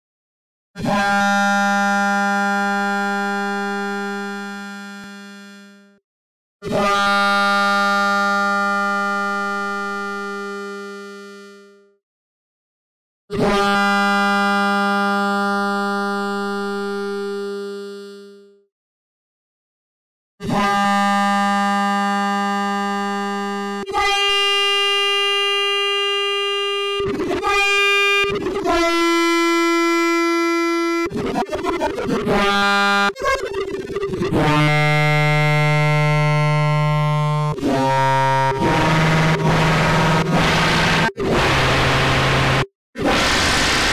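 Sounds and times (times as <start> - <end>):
loud held synth tone: 37.6 - 43.9
synth noisy hit: 41.5 - 43.9
short noisy smear: 43.0 - 43.9.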